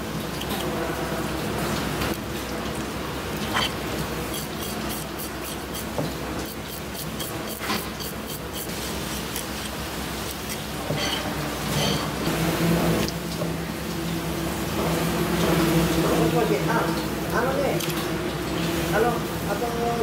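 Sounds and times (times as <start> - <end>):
tap water running: 0.0 - 20.0
knife scraping fish skin: 3.5 - 10.7.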